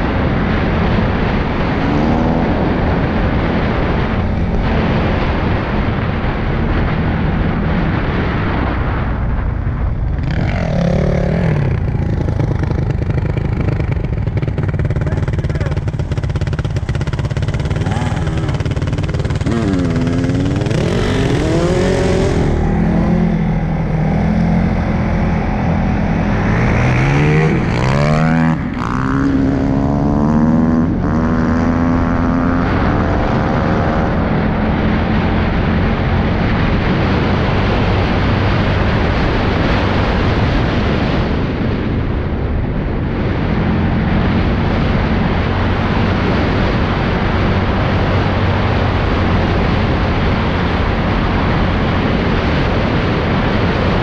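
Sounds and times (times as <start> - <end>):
atv engines revving: 0.0 - 8.7, 9.7 - 41.7, 43.0 - 54.0
wind noise: 0.0 - 54.0.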